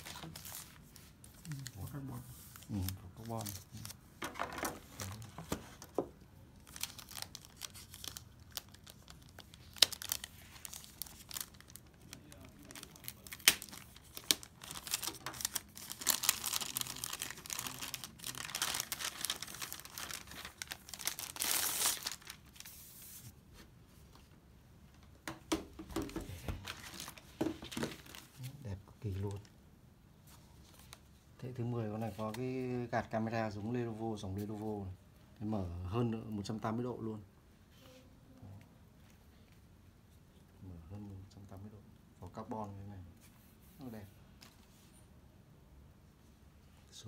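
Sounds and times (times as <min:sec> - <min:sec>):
plastic bag crinkling: 0:06.6 - 0:22.9.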